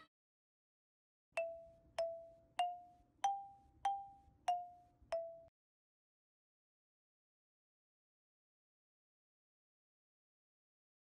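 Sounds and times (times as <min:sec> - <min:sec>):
bell-like tune: 0:01.4 - 0:05.5.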